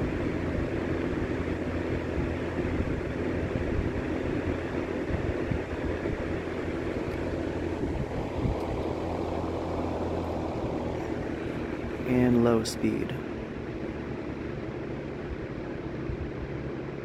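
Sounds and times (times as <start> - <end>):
box fan running: 0.0 - 17.0
fan switch clicks: 8.4 - 9.0.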